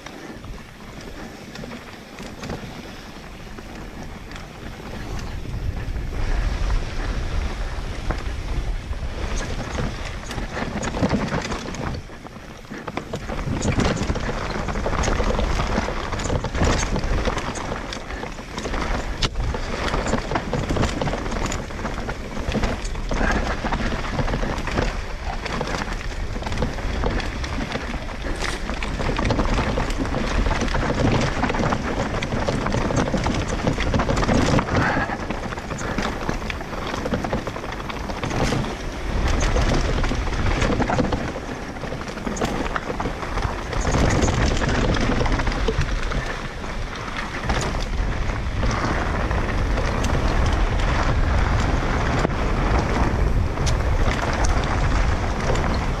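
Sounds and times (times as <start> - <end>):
bike rattling over rocks: 0.0 - 56.0
tyre and wind rush: 0.0 - 56.0.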